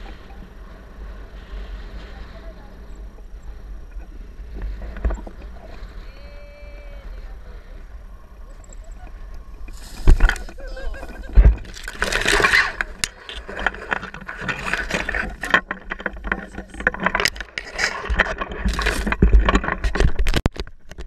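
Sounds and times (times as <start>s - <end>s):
camera handling scraping and rustling: 9.7s - 21.0s.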